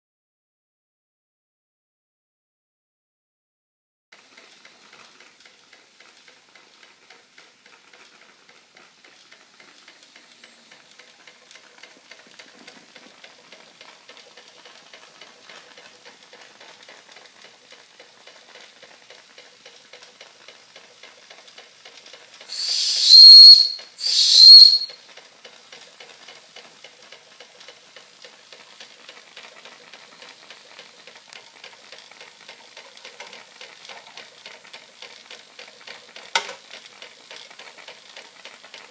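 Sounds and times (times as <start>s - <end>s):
toy steam engine chuffing: 4.2s - 38.9s
shrill steam whistle blasts: 22.4s - 25.0s.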